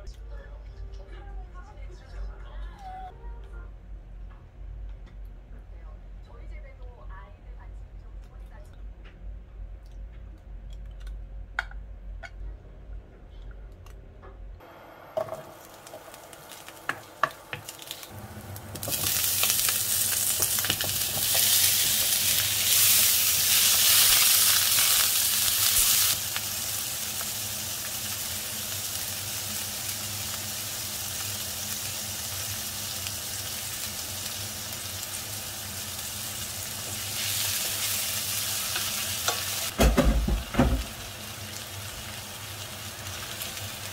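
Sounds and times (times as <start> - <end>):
sausage slices sizzling in oil: 15.2 - 43.9.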